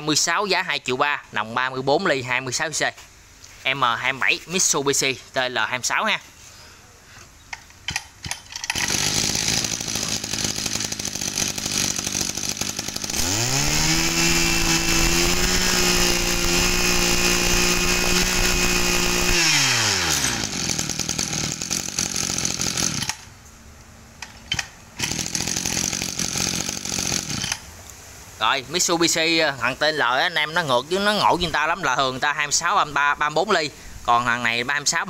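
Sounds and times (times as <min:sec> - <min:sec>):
brush cutter engine idling: 0:07.5 - 0:23.4, 0:24.2 - 0:27.7
brush cutter pull start: 0:07.9 - 0:23.3, 0:24.2 - 0:27.7
brush cutter engine revving: 0:08.4 - 0:23.3, 0:24.5 - 0:27.7.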